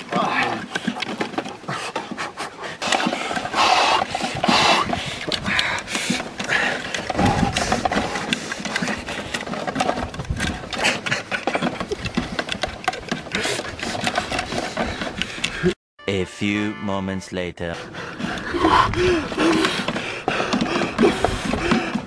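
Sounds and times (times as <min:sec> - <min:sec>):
wooden stick scraping on wood: 0:00.0 - 0:15.8, 0:17.8 - 0:22.0
heavy breathing: 0:00.6 - 0:09.9, 0:10.7 - 0:15.8, 0:17.8 - 0:22.0.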